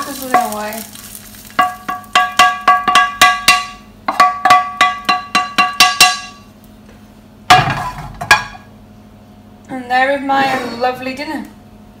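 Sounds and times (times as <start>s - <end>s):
utensil rapping a frying pan: 0.0s - 6.4s
heavy pan clunk: 7.5s - 8.7s.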